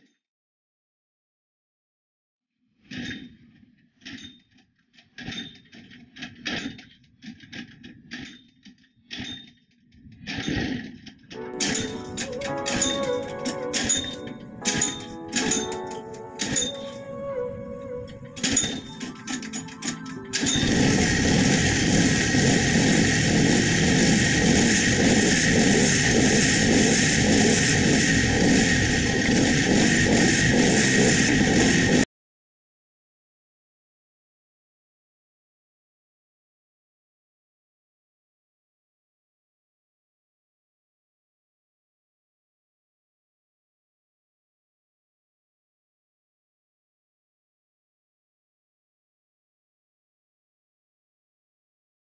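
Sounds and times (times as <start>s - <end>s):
pull start: 10.2s - 17.1s, 18.1s - 32.0s
go-kart engine running: 20.4s - 32.0s.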